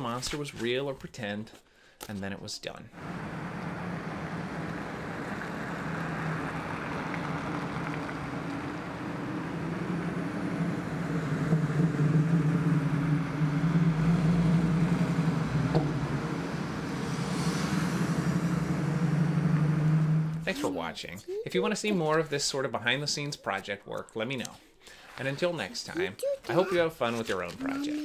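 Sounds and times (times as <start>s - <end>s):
vehicle engine humming: 3.0s - 20.7s.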